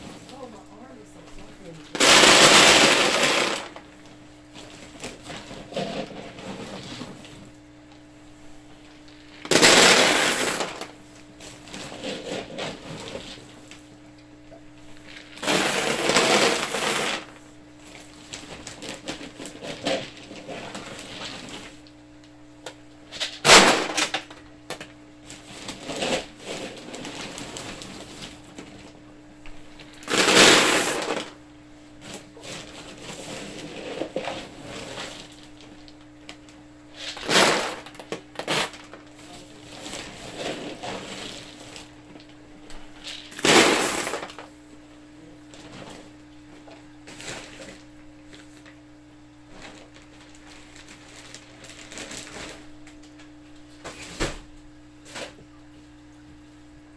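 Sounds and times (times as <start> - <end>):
pellets rattling onto plastic: 1.9 - 3.8, 9.3 - 11.0, 15.1 - 17.4, 23.1 - 24.4, 30.0 - 31.4, 37.0 - 39.0, 43.0 - 44.5.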